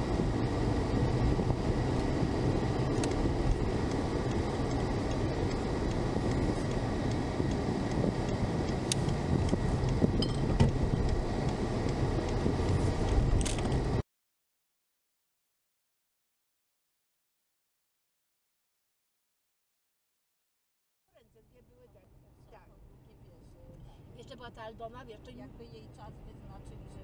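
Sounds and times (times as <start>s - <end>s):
car road and engine noise: 0.0s - 14.0s, 21.1s - 27.0s.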